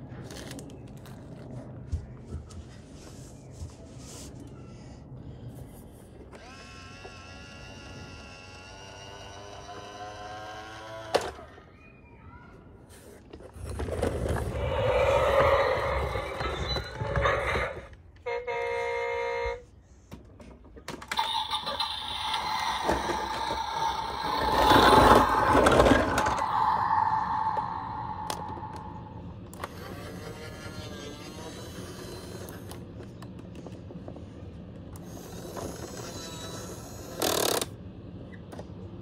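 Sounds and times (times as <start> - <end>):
toy rumbling engine sound: 4.0 - 19.3, 20.0 - 39.0
long whirring sound: 21.2 - 32.8.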